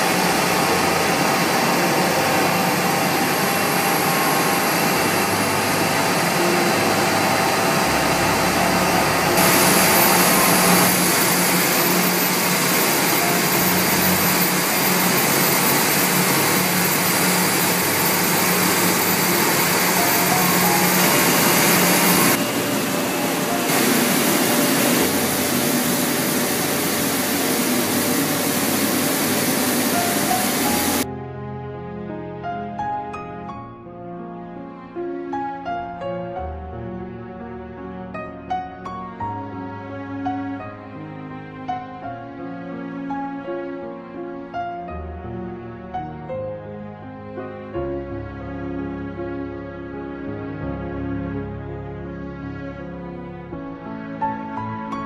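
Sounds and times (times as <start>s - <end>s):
industrial machines running: 0.0s - 31.1s.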